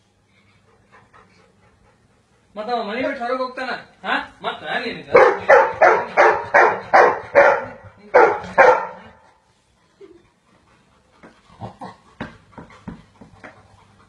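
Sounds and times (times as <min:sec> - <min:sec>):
dog barking: 0:05.1 - 0:09.2.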